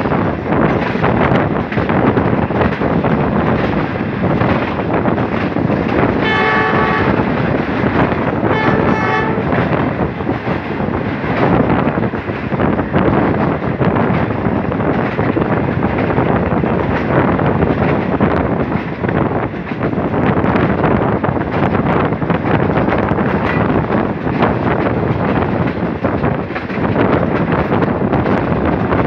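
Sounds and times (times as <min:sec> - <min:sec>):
train running on rails: 0:00.0 - 0:29.0
wind rushing: 0:00.0 - 0:29.0
train horn blasts: 0:06.2 - 0:07.4, 0:08.4 - 0:09.6.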